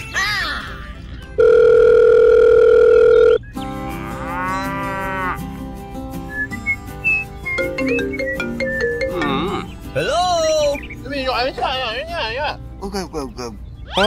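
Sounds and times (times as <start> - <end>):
light music: 0.0 - 14.0
cow mooing: 3.8 - 5.4.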